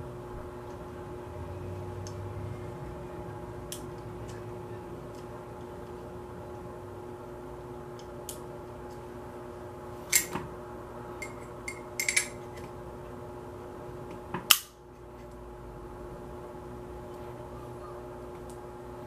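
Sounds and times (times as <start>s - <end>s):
small metal parts clicking: 11.2s - 12.4s.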